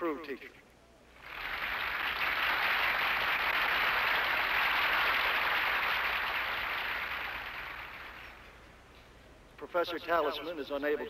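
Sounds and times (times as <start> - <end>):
crowd applauding: 1.2 - 8.6.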